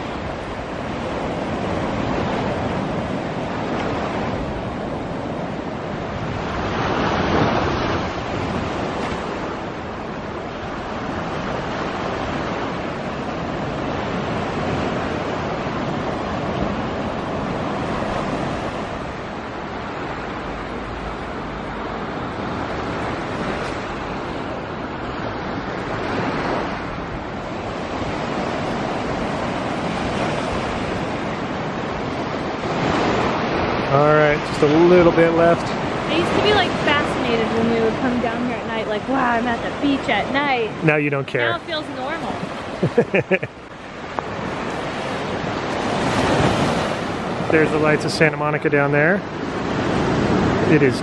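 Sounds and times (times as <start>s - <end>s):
ocean surf on beach: 0.0s - 51.0s.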